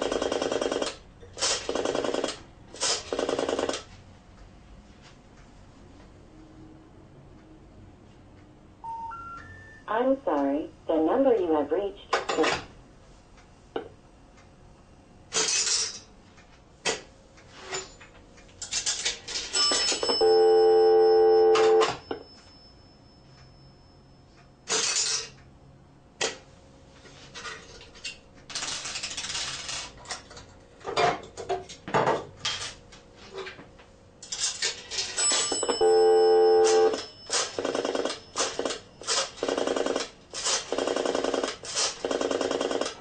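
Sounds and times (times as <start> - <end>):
buzzing dial tone: 20.0 - 22.1, 35.4 - 37.2
payphone clicks and knocks: 21.4 - 22.2, 35.2 - 37.6.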